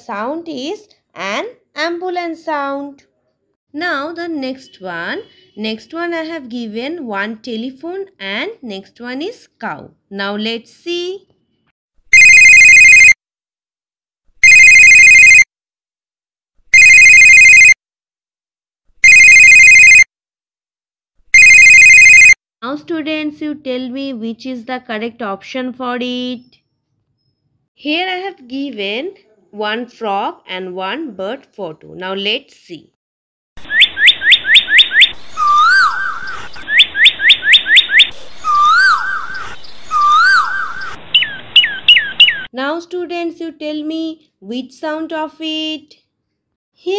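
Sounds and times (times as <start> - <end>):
telephone ringing: 12.1 - 13.2, 14.4 - 15.5, 16.7 - 17.8, 19.0 - 20.1, 21.4 - 22.4
bird singing: 33.7 - 42.5.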